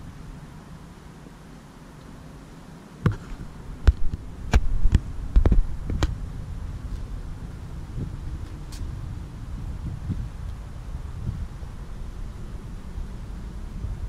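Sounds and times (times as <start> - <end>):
low steady rumble: 0.0 - 14.0
dull thumps and knocks: 3.0 - 6.1.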